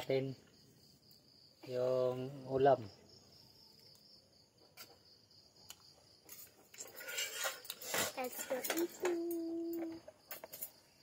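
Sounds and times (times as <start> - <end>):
crickets chirping: 0.0 - 11.0
plates and utensils clattering: 6.8 - 9.3.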